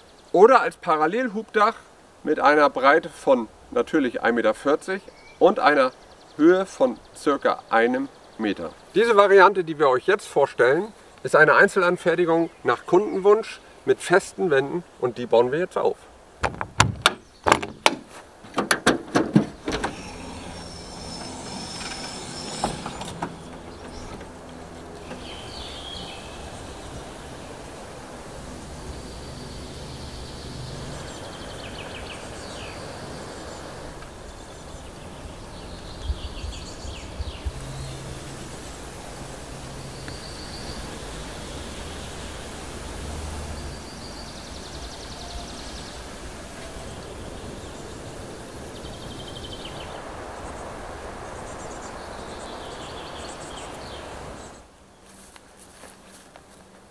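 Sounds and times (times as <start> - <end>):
outdoor background noise: 0.0 - 56.9
steady rushing hiss: 0.0 - 56.9
clicks and knocks on canopy roof: 16.4 - 20.0
short squeal: 19.8 - 23.6.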